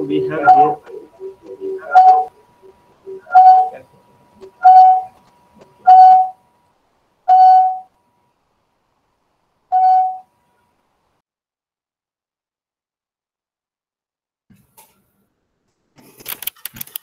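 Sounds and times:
faint high tone: 0.0 - 2.4, 3.1 - 3.9, 7.3 - 7.9, 9.7 - 10.3
electronic beeps: 0.0 - 3.8, 4.4 - 5.2, 5.8 - 6.4, 7.3 - 7.9, 9.7 - 10.3.

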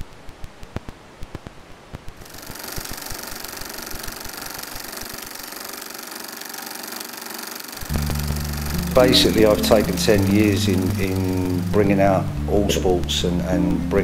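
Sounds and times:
film projector crackling clicks: 0.0 - 11.6
film projector mechanical rattle: 2.3 - 8.8
faint hiss: 7.8 - 14.0.

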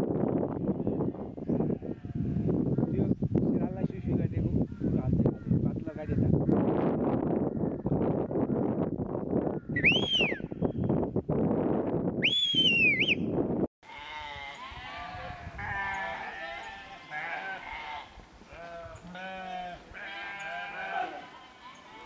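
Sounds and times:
whistles rising and falling: 9.8 - 10.6, 12.2 - 13.3
sheep bleating: 13.8 - 22.0.

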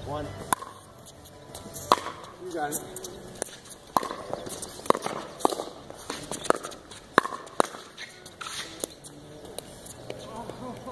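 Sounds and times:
footsteps on court: 1.0 - 10.9
paddles striking plastic ball: 3.4 - 5.7.

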